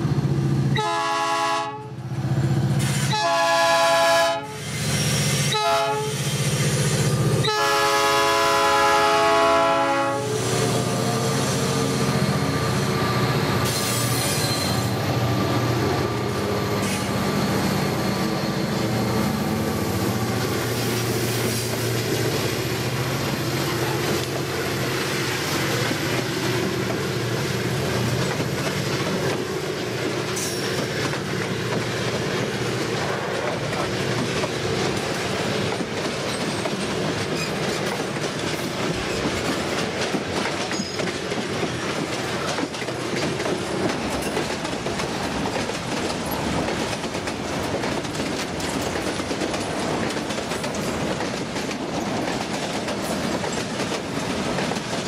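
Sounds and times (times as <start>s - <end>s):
locomotive horn blasts: 0.8s - 2.0s, 3.1s - 4.6s, 5.5s - 6.2s, 7.4s - 11.4s
wagon wheels clacking over rail joints: 28.0s - 55.0s.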